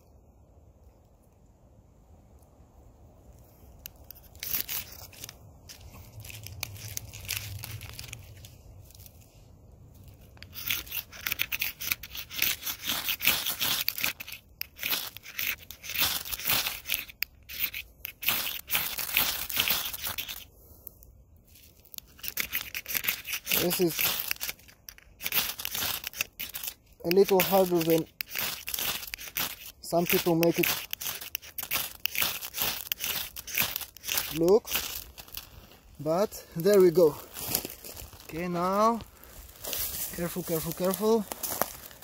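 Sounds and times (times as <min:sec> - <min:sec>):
firesteel scraping sparks: 0:10.4 - 0:20.5, 0:21.8 - 0:37.2.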